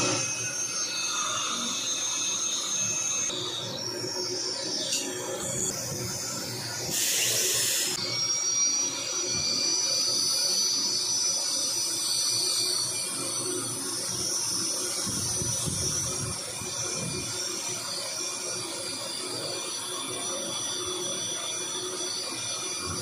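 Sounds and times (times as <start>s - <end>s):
dental drill whining: 0.0s - 23.0s
suction tip hissing: 6.9s - 8.0s.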